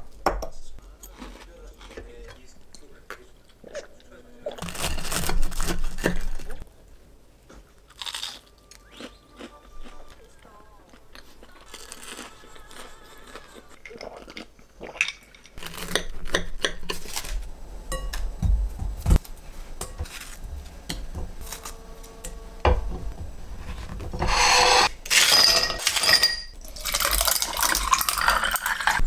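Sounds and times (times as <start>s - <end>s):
ice cubes poured into glass: 25.1s - 29.0s.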